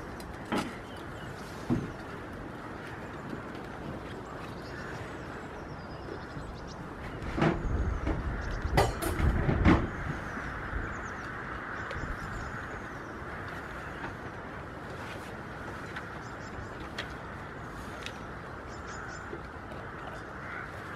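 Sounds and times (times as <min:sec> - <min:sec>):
sharp knocks and clatter: 0:07.2 - 0:10.2.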